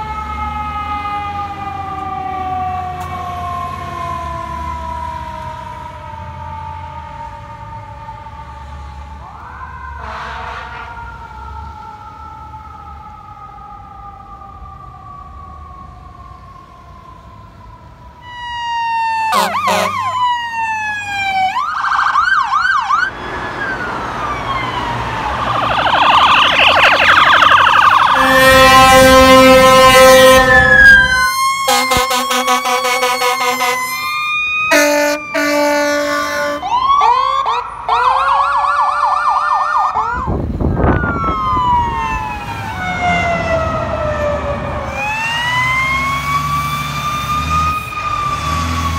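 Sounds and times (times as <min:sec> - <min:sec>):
fire engine sirens wailing: 0:00.0 - 0:48.9
air horn blasts: 0:10.0 - 0:11.0, 0:19.3 - 0:20.1, 0:28.0 - 0:34.1, 0:34.7 - 0:36.7.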